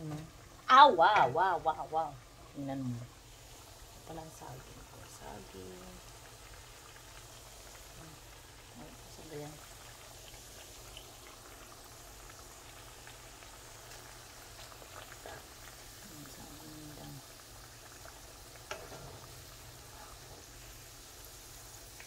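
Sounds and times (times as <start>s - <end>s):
food frying in oil: 0.0s - 22.0s.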